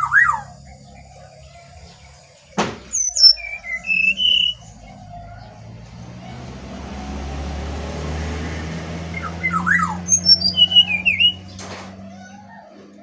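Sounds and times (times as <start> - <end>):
bird singing whistled notes: 0.0 - 5.6, 9.1 - 11.6.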